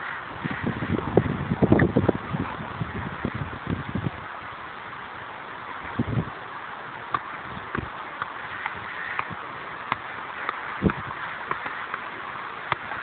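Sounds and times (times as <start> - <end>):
background hiss: 0.0 - 13.0
football thuds and taps: 7.1 - 13.0.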